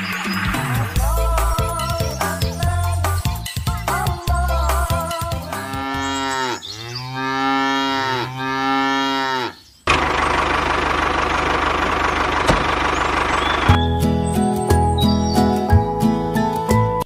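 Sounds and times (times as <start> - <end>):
cow mooing: 5.5 - 9.6
tractor engine running: 9.9 - 14.3.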